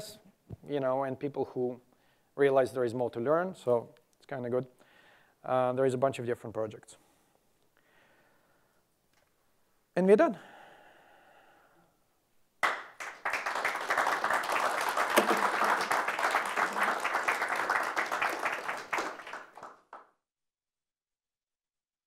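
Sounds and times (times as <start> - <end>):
audience applauding: 12.6 - 20.1.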